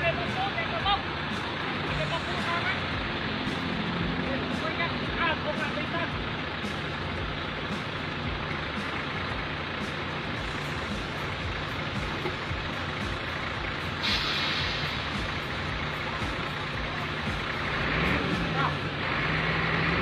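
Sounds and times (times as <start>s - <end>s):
diesel truck engine running: 0.0s - 20.0s
air hiss: 13.9s - 16.0s.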